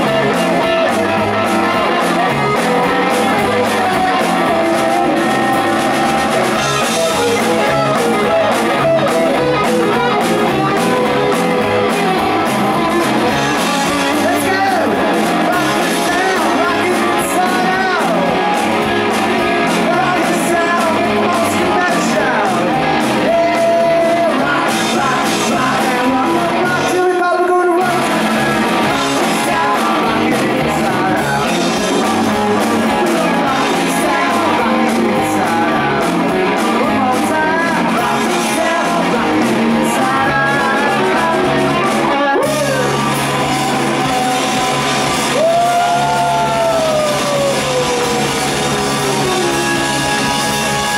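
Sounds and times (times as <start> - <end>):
person singing: 0.0 - 50.9
rock band playing: 0.0 - 50.9.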